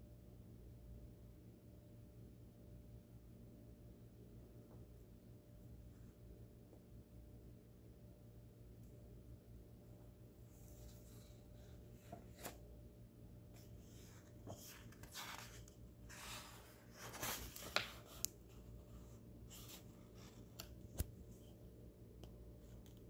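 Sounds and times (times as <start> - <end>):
book page turning: 10.5 - 12.7, 13.6 - 18.8.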